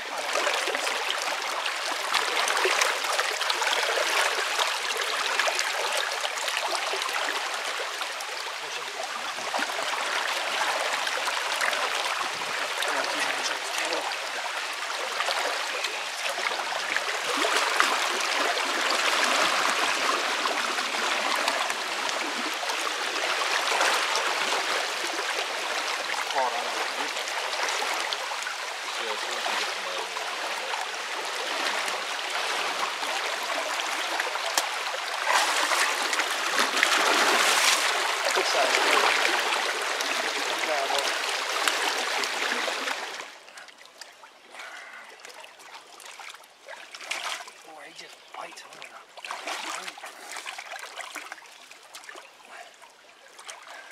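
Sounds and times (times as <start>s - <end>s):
stream rushing: 0.0s - 43.7s, 44.4s - 53.9s
water sloshing and splashing: 0.0s - 53.9s.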